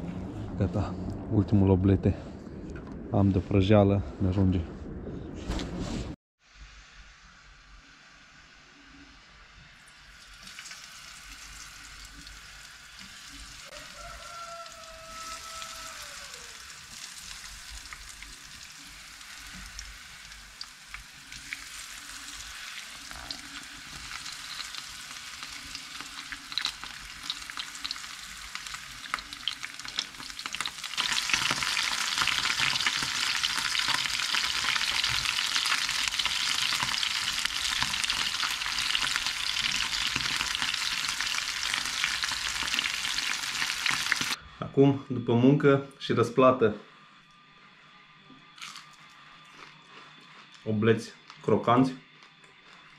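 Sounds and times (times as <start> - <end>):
fish frying in hot oil: 9.8 - 44.4.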